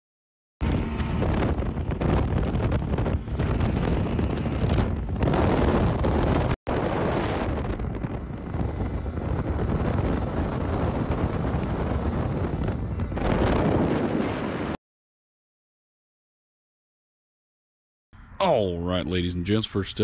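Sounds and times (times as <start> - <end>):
outboard motor running: 0.6 - 14.8
water rushing past boat: 0.6 - 14.8
wind buffeting microphone: 0.6 - 14.8.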